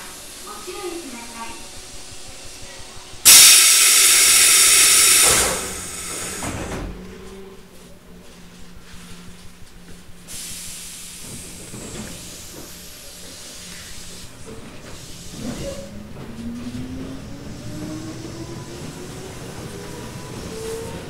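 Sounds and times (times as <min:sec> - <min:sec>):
train low hum: 0:00.0 - 0:21.0
air hiss: 0:03.2 - 0:06.7, 0:10.3 - 0:15.6.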